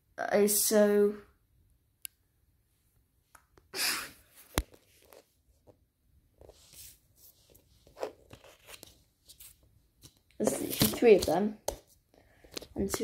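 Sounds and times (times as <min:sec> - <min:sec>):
paper rustling: 0:06.4 - 0:13.0.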